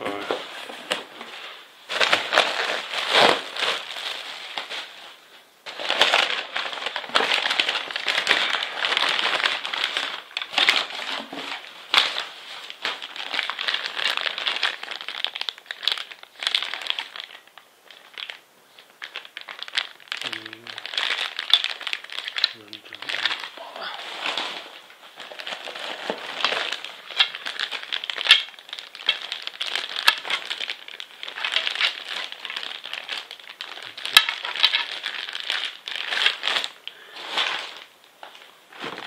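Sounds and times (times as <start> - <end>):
plastic and paper wrappings crinkling: 0.0 - 39.0.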